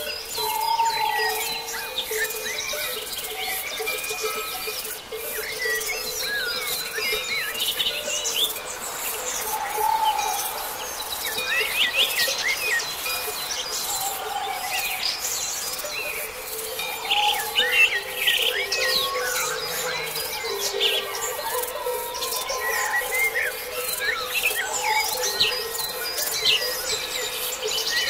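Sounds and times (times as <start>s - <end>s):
songbirds chirping and singing: 0.0s - 28.0s.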